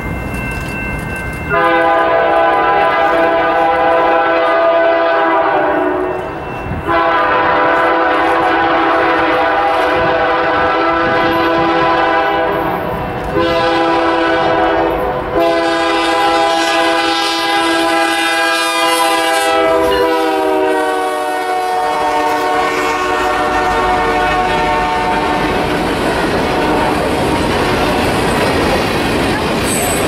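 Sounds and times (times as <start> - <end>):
locomotive air horn blasts: 1.5 - 6.2, 6.9 - 25.7, 26.4 - 27.8
freight cars rumbling and clattering: 24.4 - 30.0.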